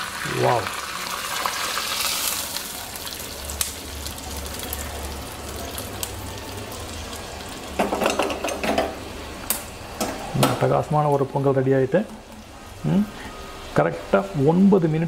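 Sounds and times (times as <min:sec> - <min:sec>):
hot ghee sizzling: 0:00.0 - 0:14.1.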